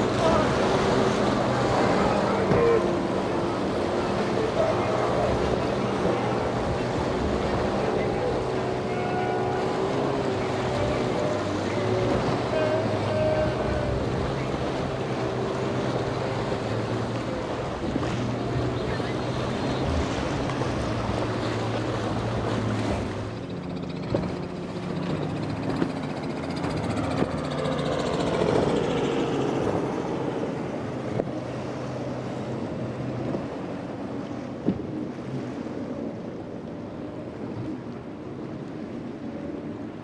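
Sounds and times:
outboard boat engines: 0.0s - 40.0s
splashing waves: 0.0s - 40.0s.

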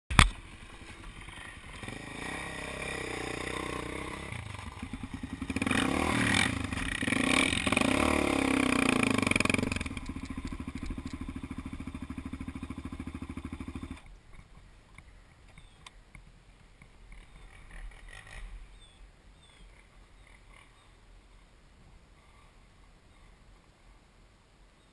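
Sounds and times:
atv engine revving: 0.2s - 14.1s, 17.0s - 19.0s.

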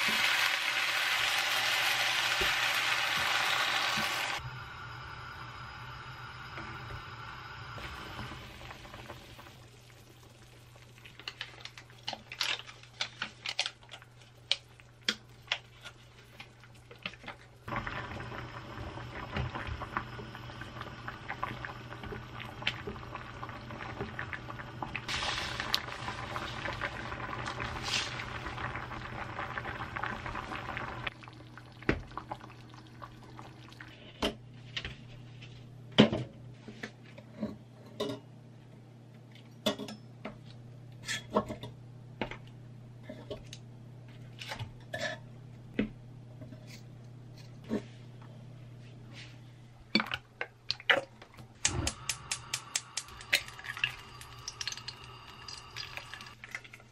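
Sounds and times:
curry bubbling in a pan: 14.2s - 33.9s.

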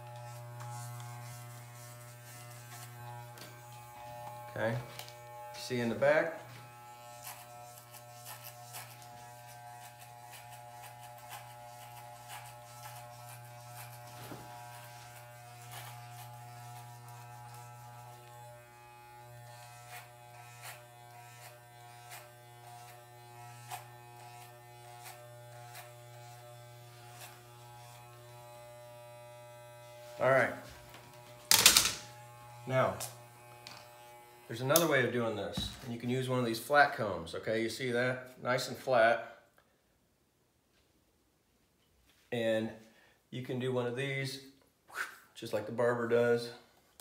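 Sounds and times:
electric hair clippers buzzing: 0.0s - 35.9s.

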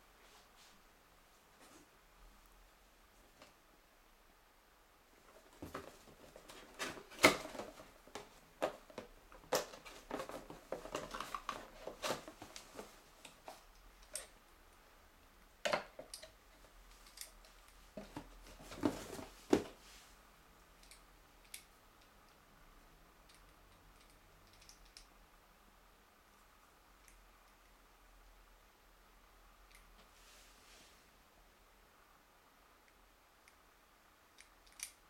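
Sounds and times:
cardboard scraping and rustling: 5.4s - 13.0s, 18.0s - 19.9s.

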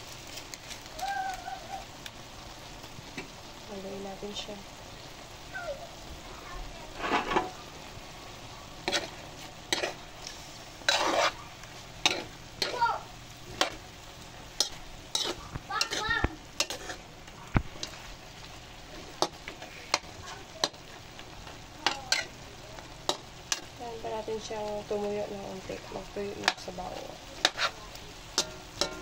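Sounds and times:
steady sizzle: 0.0s - 29.0s
utensil scraping and knocking pan: 7.0s - 7.5s, 10.8s - 11.4s, 27.4s - 27.8s.

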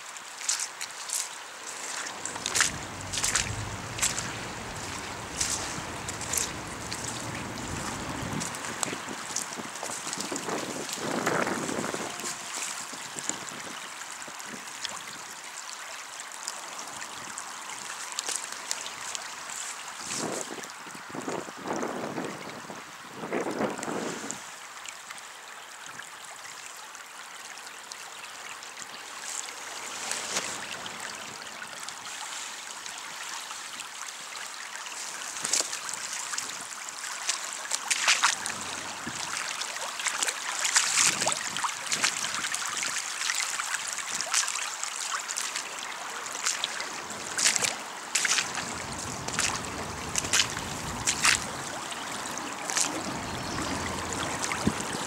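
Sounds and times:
water splashes: 0.0s - 22.7s, 27.8s - 55.0s
floodwater rushing over pavement: 0.0s - 25.4s, 27.1s - 55.0s.

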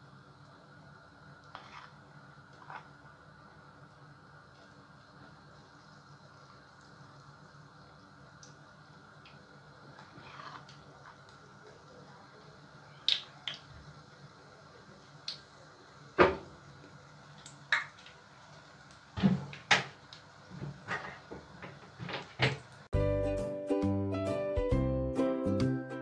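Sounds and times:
batter frying in hot oil: 0.0s - 22.9s.

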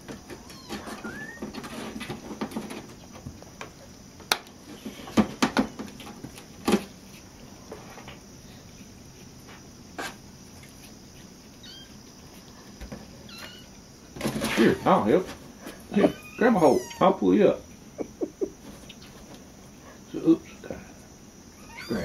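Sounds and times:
faint high squeaks: 0.3s - 2.0s, 11.6s - 12.0s, 13.2s - 13.8s, 15.9s - 17.2s, 21.6s - 22.0s
cats scrabbling in cardboard box: 14.2s - 16.2s.

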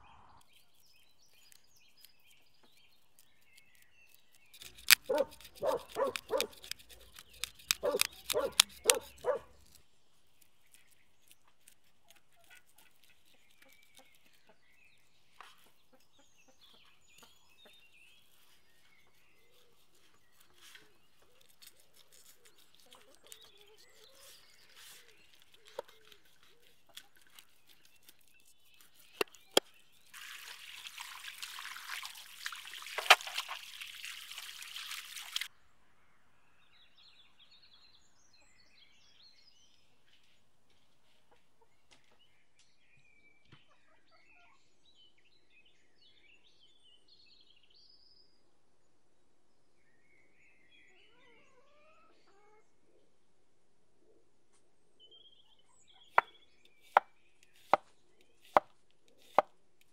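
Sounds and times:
knife scraping fish scales: 3.1s - 9.8s, 19.4s - 29.8s, 58.4s - 59.5s
sharp clicks: 4.3s - 9.4s.

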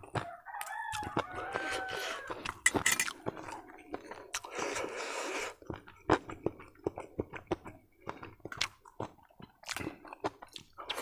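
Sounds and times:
close-up chewing: 0.0s - 11.0s
rooster crowing: 0.2s - 2.4s.

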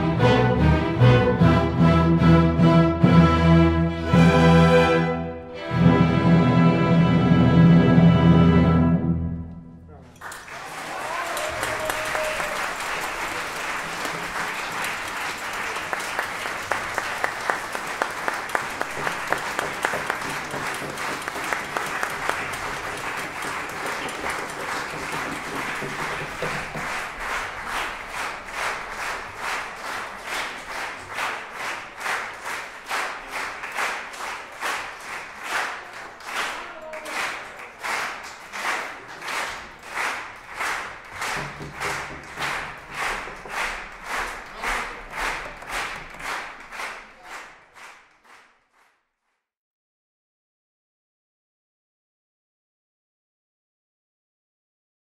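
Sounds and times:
audience applauding: 10.1s - 49.0s
rhythmic clapping in unison: 10.2s - 49.3s.

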